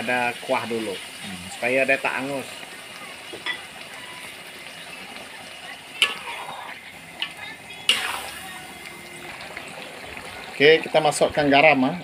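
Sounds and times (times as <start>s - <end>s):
food sizzling in a wok: 0.0s - 12.0s
utensil scraping wok: 3.3s - 9.7s.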